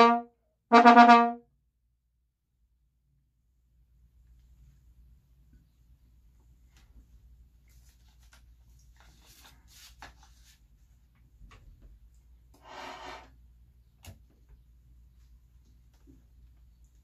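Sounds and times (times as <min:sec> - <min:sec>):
sheet music rustling: 0:06.5 - 0:11.3.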